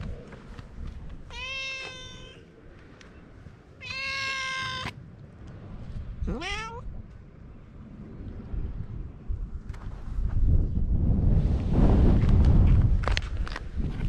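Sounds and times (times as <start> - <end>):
wind rumble on microphone: 0.0 - 14.0
cat meowing: 1.3 - 2.5, 3.8 - 5.0, 6.2 - 6.9.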